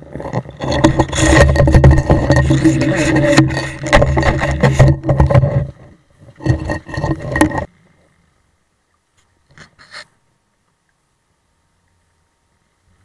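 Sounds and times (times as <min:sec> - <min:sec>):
knocking and scraping on camera housing: 0:00.3 - 0:05.7.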